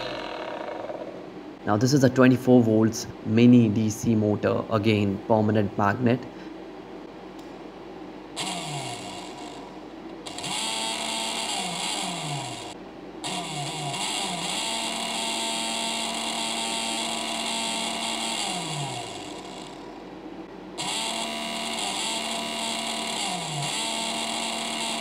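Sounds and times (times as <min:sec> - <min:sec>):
small electric motor whining: 0:00.0 - 0:01.2, 0:08.4 - 0:19.9, 0:20.8 - 0:25.0.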